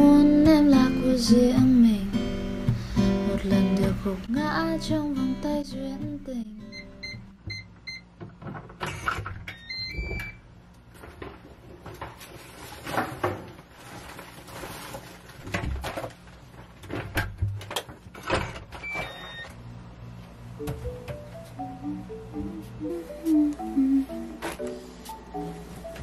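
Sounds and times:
rustling: 0:11.8 - 0:16.8.

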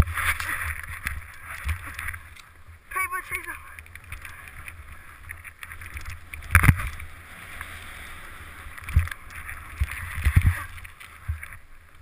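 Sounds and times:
wind rushing over camera: 0:03.8 - 0:12.0
skis sliding through powder snow: 0:06.9 - 0:11.5.

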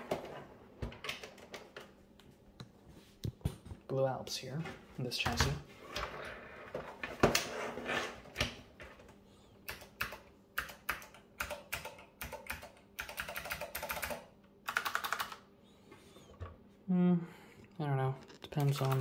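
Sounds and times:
clicky keyboard typing: 0:09.7 - 0:15.4, 0:18.6 - 0:19.0.

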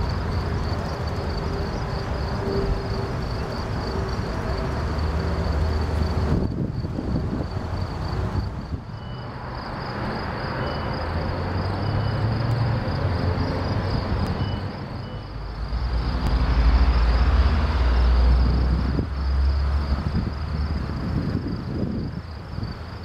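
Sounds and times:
jet airliner passing overhead: 0:00.0 - 0:12.2.

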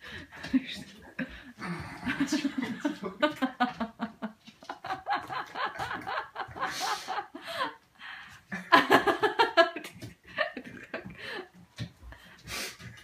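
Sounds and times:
person laughing: 0:00.6 - 0:07.8.

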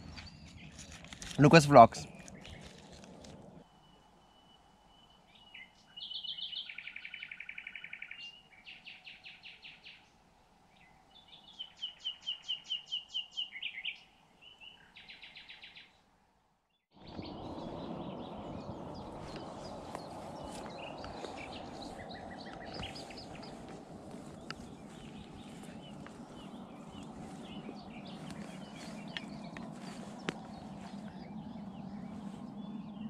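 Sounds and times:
songbird singing: 0:00.0 - 0:16.1, 0:16.7 - 0:33.0
steady rushing noise: 0:17.0 - 0:33.0.

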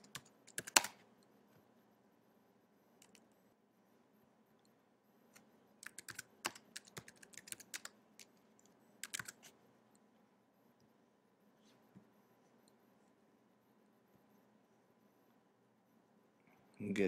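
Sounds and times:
faint keyboard typing: 0:00.0 - 0:01.6, 0:03.0 - 0:03.4, 0:04.6 - 0:10.1.

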